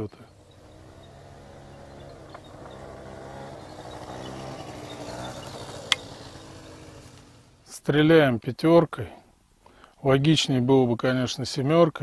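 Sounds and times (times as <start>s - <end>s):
motor scooter engine running: 0.0s - 7.7s.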